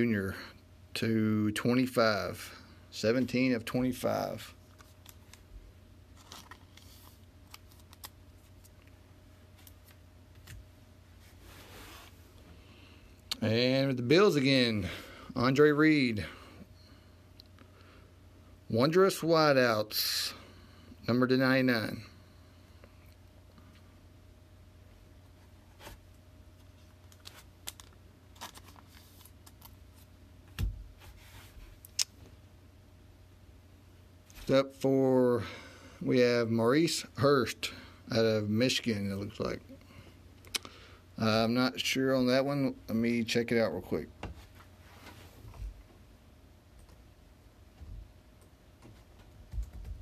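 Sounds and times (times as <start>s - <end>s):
low steady hum: 0.0s - 50.0s
soft rustle: 11.1s - 12.5s.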